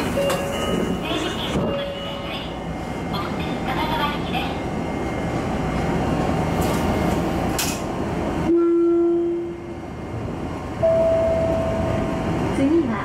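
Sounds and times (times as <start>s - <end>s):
train wheel and rail rumble: 0.0s - 13.0s
higher steady tone: 10.8s - 12.3s.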